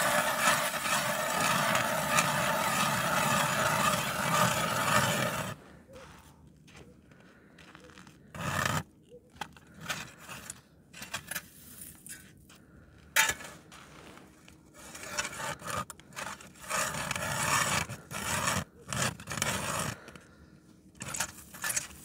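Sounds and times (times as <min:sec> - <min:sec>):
ice auger grinding through ice: 0:00.0 - 0:05.6, 0:08.2 - 0:08.9, 0:14.8 - 0:20.3, 0:21.0 - 0:22.0.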